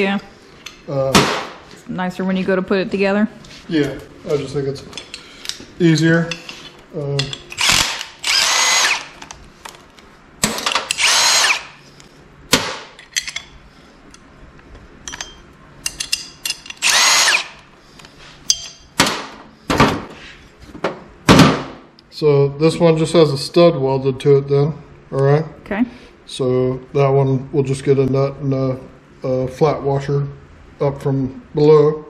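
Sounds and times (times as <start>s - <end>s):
cordless impact driver running: 7.6s - 9.2s, 10.9s - 11.8s, 16.8s - 17.6s.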